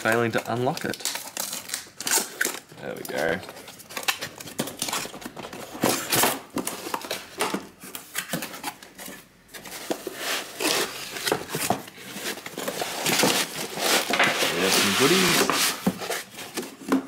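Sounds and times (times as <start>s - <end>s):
cardboard scraping and rubbing: 9.6s - 16.9s.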